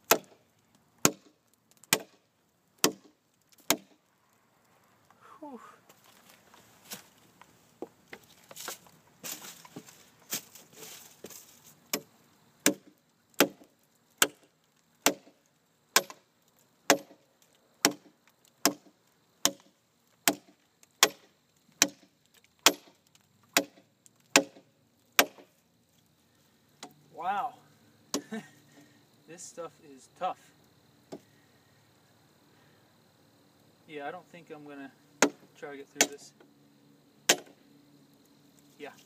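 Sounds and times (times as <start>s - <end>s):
knife chopping hardwood: 0.1s - 0.4s, 1.0s - 2.2s, 2.8s - 4.0s, 11.9s - 14.4s, 15.0s - 15.4s, 16.0s - 16.2s, 16.9s - 17.2s, 17.8s - 24.6s, 25.2s - 25.5s, 35.2s - 36.2s, 37.3s - 37.6s.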